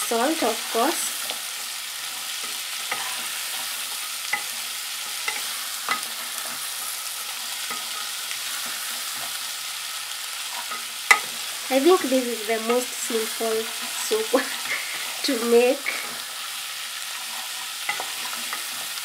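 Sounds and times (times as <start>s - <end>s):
vegetables sizzling in a pot: 0.0s - 19.0s
wooden spatula scraping pot: 2.0s - 9.4s, 17.0s - 19.0s.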